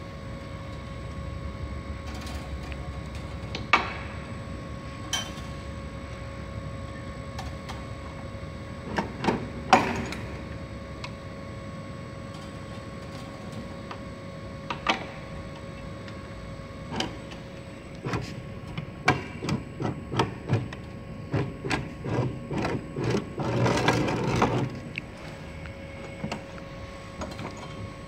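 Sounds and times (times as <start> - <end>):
steady machine hum: 0.0 - 28.0.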